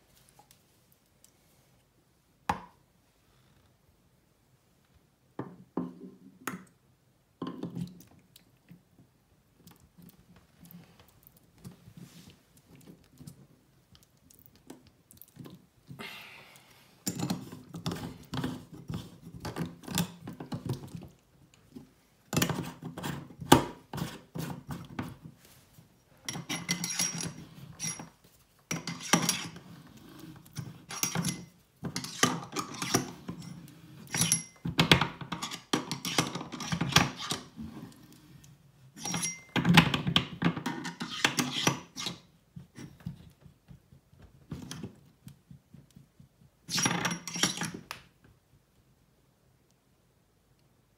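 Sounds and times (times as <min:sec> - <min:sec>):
metal parts clinking and scraping: 0:26.3 - 0:28.1, 0:28.7 - 0:29.6, 0:30.8 - 0:34.6, 0:35.3 - 0:37.4, 0:39.0 - 0:39.6, 0:46.7 - 0:47.8
light metallic rings: 0:39.0 - 0:39.6.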